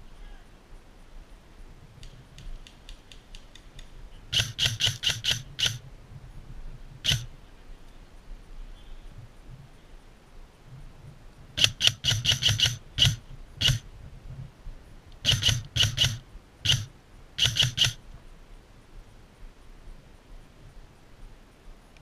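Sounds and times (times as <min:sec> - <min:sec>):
airsoft guns firing: 0:04.3 - 0:05.8, 0:07.0 - 0:07.3, 0:11.6 - 0:13.8, 0:15.2 - 0:18.0.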